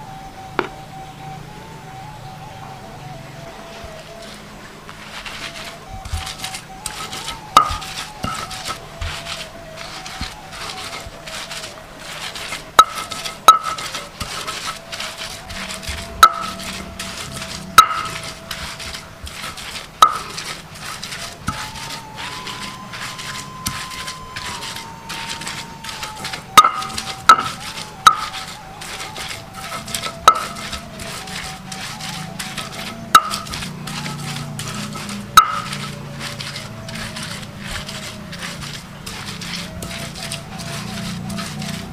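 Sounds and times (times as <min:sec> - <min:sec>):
stone pestle grinding in mortar: 0:03.8 - 0:41.9
stone-on-stone knocks: 0:06.0 - 0:09.2, 0:12.8 - 0:14.6, 0:17.8 - 0:20.5, 0:23.2 - 0:28.4, 0:35.4 - 0:35.9.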